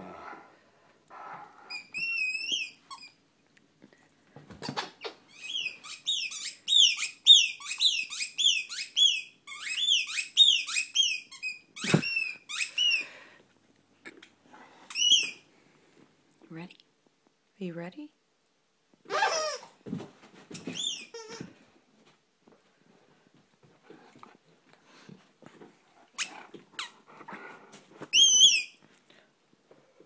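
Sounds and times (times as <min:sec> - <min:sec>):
squeaky toy squeaks: 0:01.7 - 0:03.2, 0:04.6 - 0:13.0, 0:14.9 - 0:15.4, 0:19.1 - 0:19.8, 0:20.5 - 0:21.5, 0:28.1 - 0:28.8.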